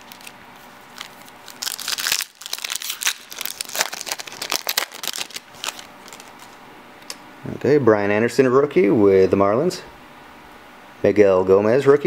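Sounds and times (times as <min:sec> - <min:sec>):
foil wrapper crinkling: 0:00.0 - 0:06.6.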